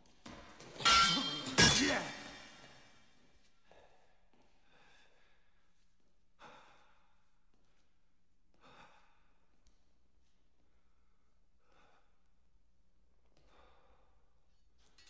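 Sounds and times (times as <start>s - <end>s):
man breathing heavily: 3.7s - 10.0s, 10.6s - 14.6s.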